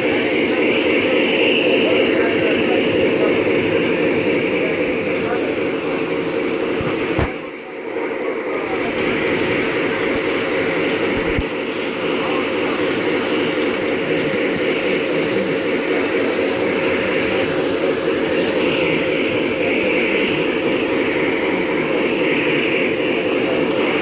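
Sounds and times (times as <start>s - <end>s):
model train motor whirring: 7.8s - 24.0s.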